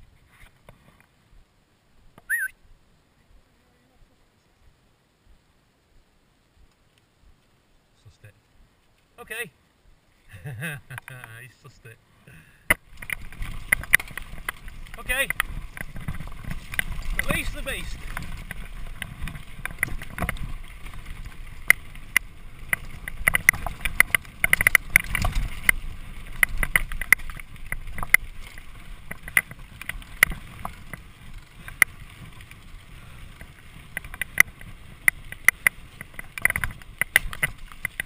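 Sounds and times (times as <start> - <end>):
bike rattles and clicks: 12.6 - 38.0
bike tyres rumbling over dirt: 12.7 - 38.0.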